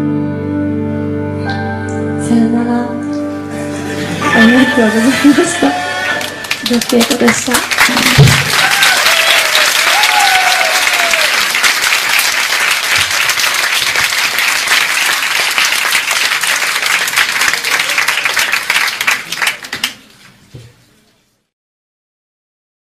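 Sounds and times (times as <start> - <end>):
audience applauding: 4.2 - 20.2.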